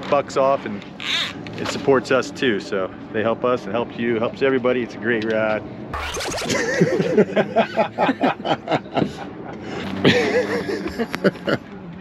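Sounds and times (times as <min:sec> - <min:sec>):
people laughing: 0:06.3 - 0:11.7.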